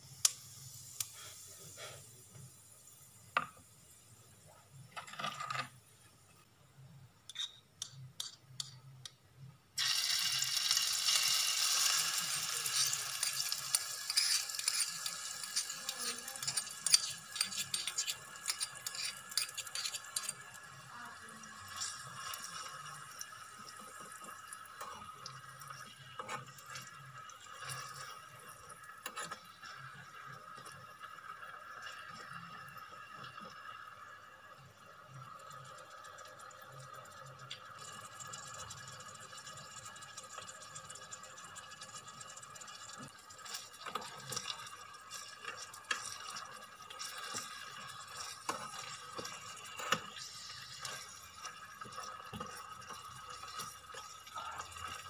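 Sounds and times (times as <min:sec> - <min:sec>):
chicken sizzling in oil: 0:00.0 - 0:04.2, 0:09.8 - 0:55.0
spoon stirring pan: 0:07.2 - 0:08.9, 0:12.0 - 0:33.7, 0:37.4 - 0:55.0
seeds dropped into hot oil: 0:09.8 - 0:20.6.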